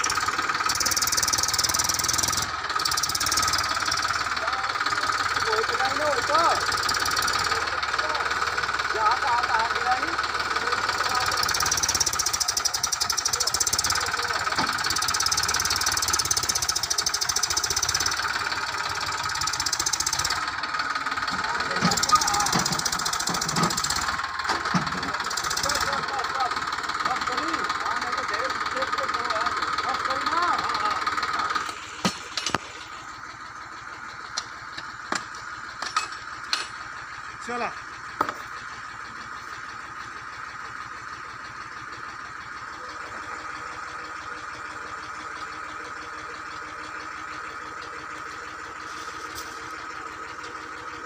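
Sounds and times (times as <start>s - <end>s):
tractor diesel engine running: 0.0s - 51.0s
sharp clicks and knocks: 21.3s - 26.1s, 34.3s - 36.8s.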